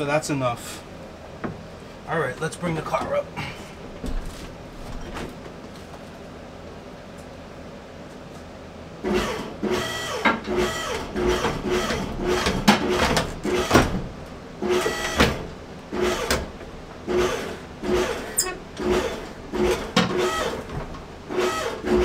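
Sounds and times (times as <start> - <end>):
electric lift motor bursts: 9.0 - 14.0, 14.6 - 16.5, 17.1 - 20.7, 21.3 - 22.0.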